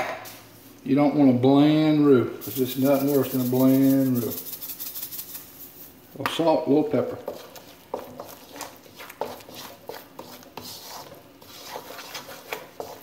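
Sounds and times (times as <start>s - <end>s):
wooden spoon scraping in wok: 7.1s - 13.0s.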